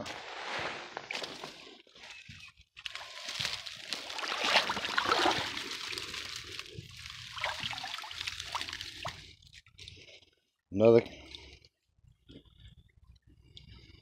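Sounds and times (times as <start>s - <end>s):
creek water trickling: 2.8s - 10.0s
water splashing: 3.0s - 9.3s.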